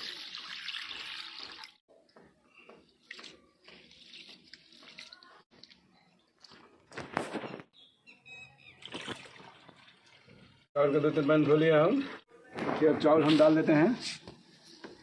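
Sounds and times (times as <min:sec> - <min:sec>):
water sloshing: 0:08.8 - 0:12.3.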